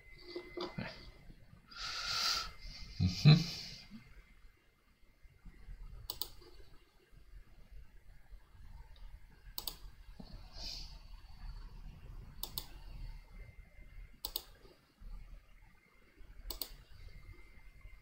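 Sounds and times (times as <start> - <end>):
faint low rumble: 2.5 - 18.0
computer mouse button clicking: 14.2 - 14.5, 16.5 - 16.8.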